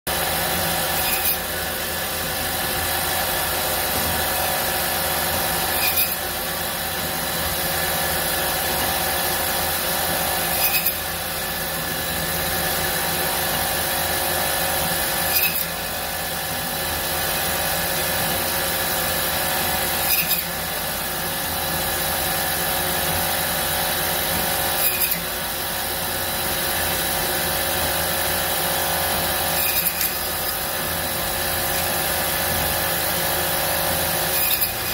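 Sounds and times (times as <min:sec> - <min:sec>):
short sharp machine sound: 0:00.1 - 0:01.8, 0:03.3 - 0:06.4, 0:08.5 - 0:11.1, 0:15.0 - 0:15.8, 0:32.9 - 0:34.9
band saw running: 0:00.1 - 0:34.9.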